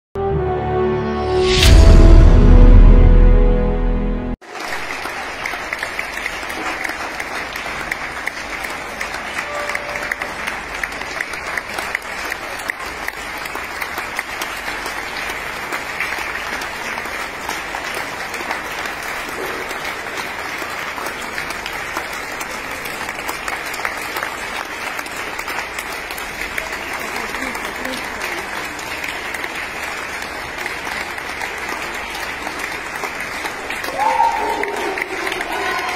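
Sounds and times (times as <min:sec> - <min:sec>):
music jingle: 0:00.2 - 0:04.4, 0:09.4 - 0:10.6
crowd applauding: 0:04.4 - 0:35.9.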